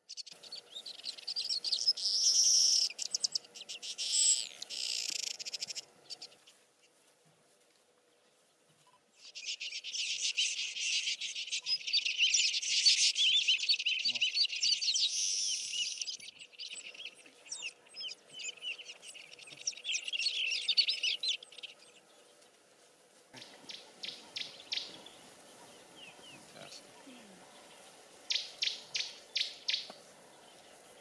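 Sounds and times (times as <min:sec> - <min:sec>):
small birds chirping: 0:00.0 - 0:31.0.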